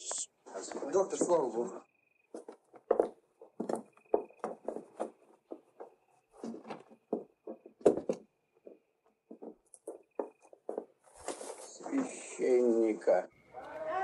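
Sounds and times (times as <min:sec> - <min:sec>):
footsteps on wooden floor: 0:02.3 - 0:11.6.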